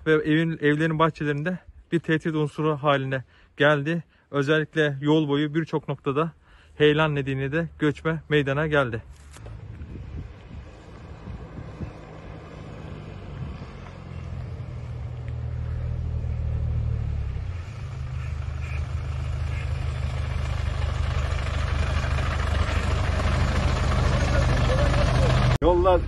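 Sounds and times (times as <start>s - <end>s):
bus diesel engine running: 6.6s - 26.0s.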